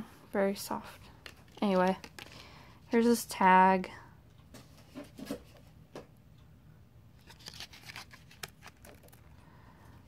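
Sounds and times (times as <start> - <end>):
cardboard tag clicks and rustles: 7.2 - 9.2.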